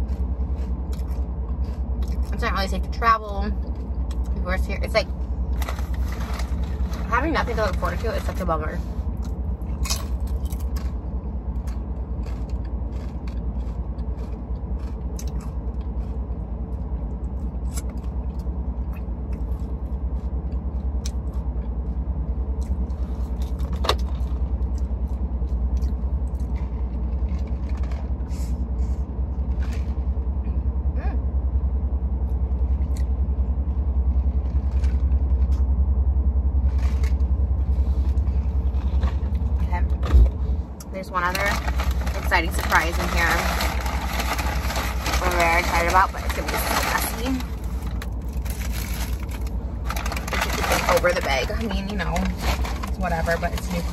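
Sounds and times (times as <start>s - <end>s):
car cabin rumble: 0.0s - 53.9s.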